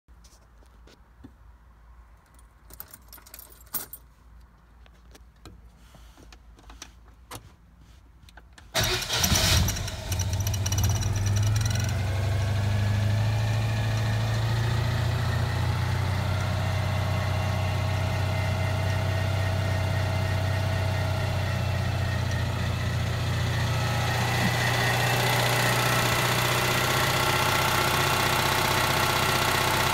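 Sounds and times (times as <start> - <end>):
car engine starting and idling: 8.7 - 29.9.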